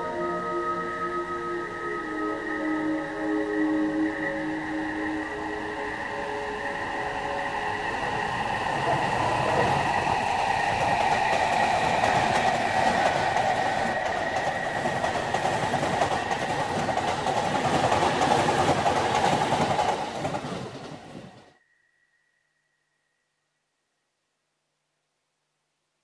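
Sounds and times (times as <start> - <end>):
train wheels on rails: 4.7 - 21.6.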